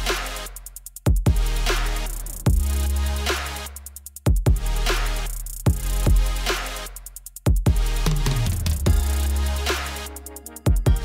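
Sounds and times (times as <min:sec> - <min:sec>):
sustained deep bass: 0:07.7 - 0:11.0.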